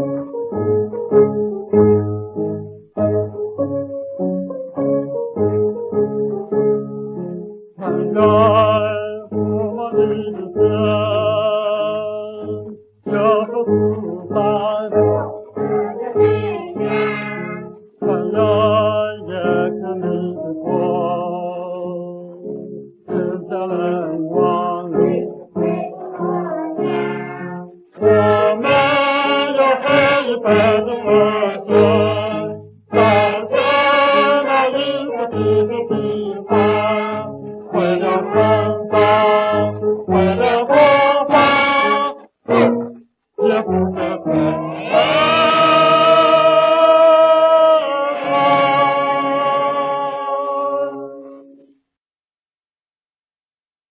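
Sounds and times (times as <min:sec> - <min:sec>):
singer with ensemble on old record: 0:07.8 - 0:51.8.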